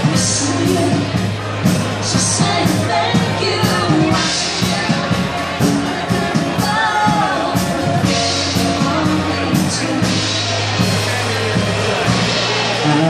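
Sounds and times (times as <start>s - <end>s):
woman singing: 0.0s - 10.7s
pop-rock band playing: 0.0s - 13.0s.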